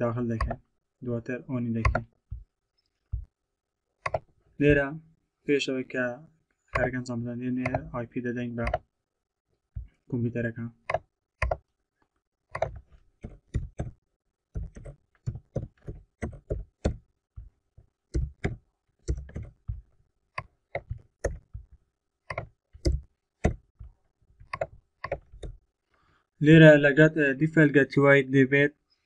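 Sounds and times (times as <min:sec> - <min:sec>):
typing on computer keyboard: 0:01.8 - 0:02.0, 0:11.4 - 0:11.6, 0:14.6 - 0:17.0.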